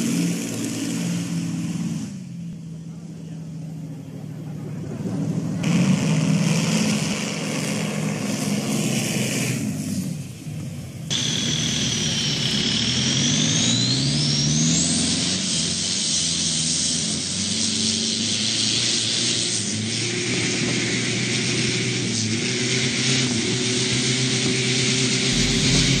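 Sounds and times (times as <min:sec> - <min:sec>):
boat engine revving: 0:05.0 - 0:09.6, 0:11.1 - 0:16.4, 0:25.2 - 0:26.0.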